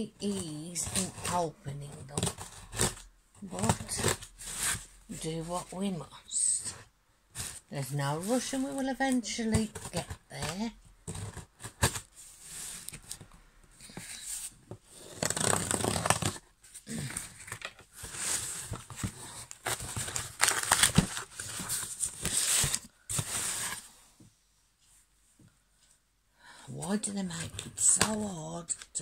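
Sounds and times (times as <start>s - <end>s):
cardboard box being torn open: 15.2s - 17.5s, 19.7s - 21.2s.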